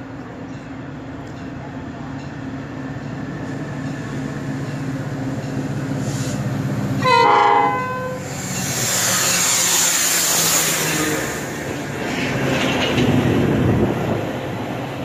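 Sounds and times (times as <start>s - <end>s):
diesel locomotive engine rumble: 0.0s - 15.0s
train horn blast: 7.0s - 8.3s.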